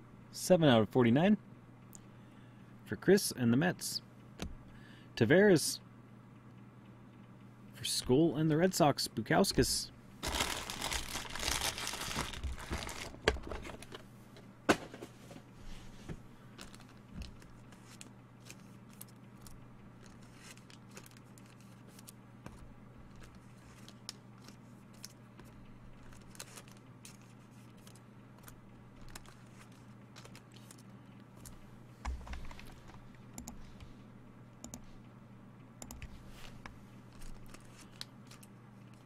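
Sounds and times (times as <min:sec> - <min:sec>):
steady low hum: 0:00.0 - 0:39.0
packaging crinkling and rustling: 0:10.2 - 0:14.0, 0:16.6 - 0:22.2, 0:25.9 - 0:28.0.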